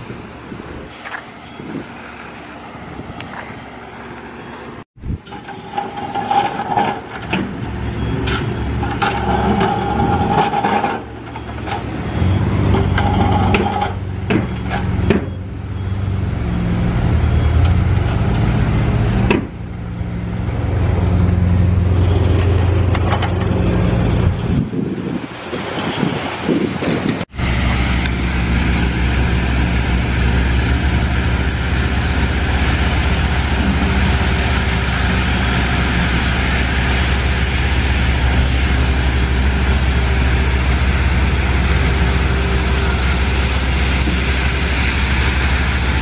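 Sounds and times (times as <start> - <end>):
excavator diesel engine: 0.0 - 26.3, 27.2 - 46.0
hydraulic whining: 27.4 - 46.0.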